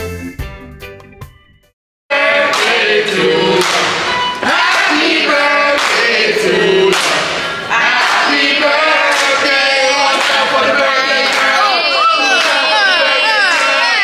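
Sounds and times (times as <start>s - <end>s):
group singing unaccompanied chorus: 2.1s - 12.6s
hand claps keeping a beat: 2.1s - 14.0s.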